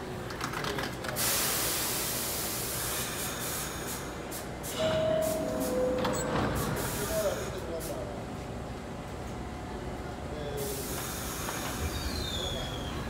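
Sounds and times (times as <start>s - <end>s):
compressed-air hiss: 1.2s - 4.8s, 10.6s - 12.3s
two-tone descending door chime: 4.8s - 6.6s.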